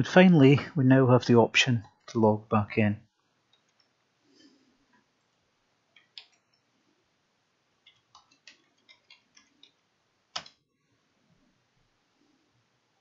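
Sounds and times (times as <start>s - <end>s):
keyboard keys clicking: 7.8s - 10.6s.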